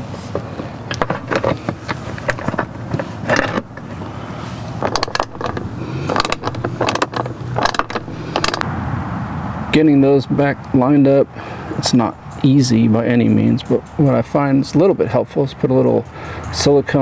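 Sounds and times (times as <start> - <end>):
plastic clicking and scraping: 0.2 - 8.6.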